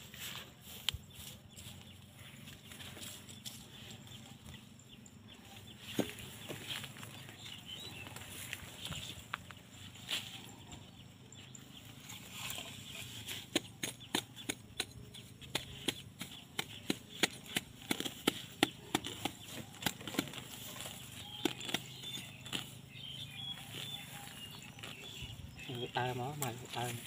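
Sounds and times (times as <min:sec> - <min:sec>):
machete striking soil and sticks: 0:05.8 - 0:07.0, 0:12.1 - 0:22.8.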